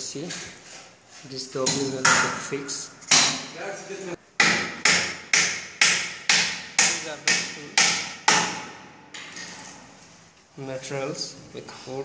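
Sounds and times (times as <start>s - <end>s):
hammer striking wood: 1.6s - 3.6s, 4.4s - 8.9s.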